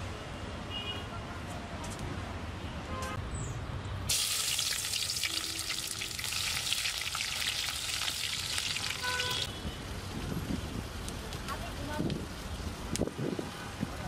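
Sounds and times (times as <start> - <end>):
food sizzling in hot oil: 4.1 - 9.5.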